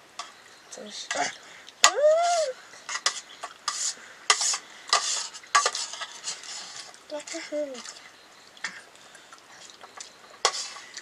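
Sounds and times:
utensil scraping in a pot: 2.2s - 8.8s, 9.5s - 11.0s.

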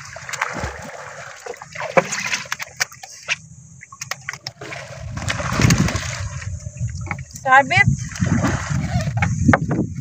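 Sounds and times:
water splashing and sloshing: 0.0s - 10.0s
low rumble: 4.5s - 10.0s.

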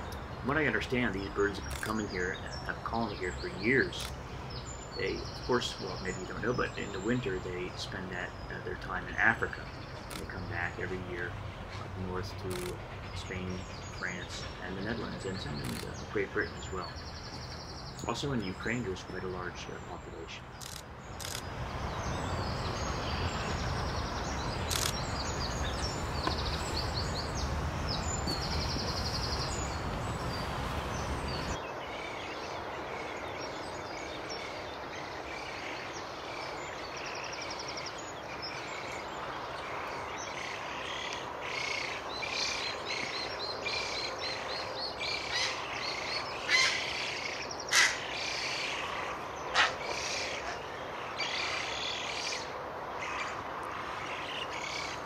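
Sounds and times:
birds chirping and trilling: 0.0s - 55.0s
outdoor background noise: 0.0s - 55.0s.

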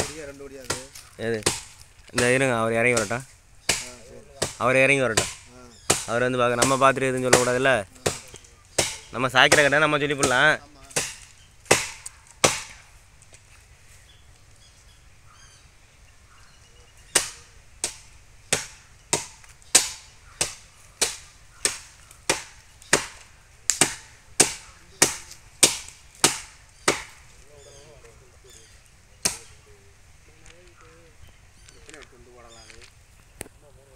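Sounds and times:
blade chopping palm tree: 0.0s - 12.8s, 17.1s - 27.3s, 29.2s - 29.6s.

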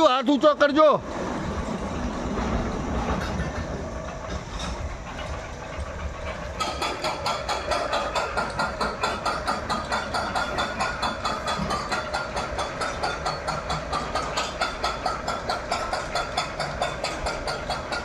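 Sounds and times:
low rumble of chain lift: 1.0s - 18.0s
ratchet clacking: 4.3s - 18.0s.

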